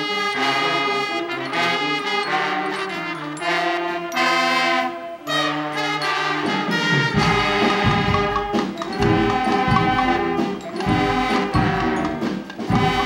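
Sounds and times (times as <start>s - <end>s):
brass band playing loudly: 0.0s - 13.0s
drum beats: 5.8s - 13.0s.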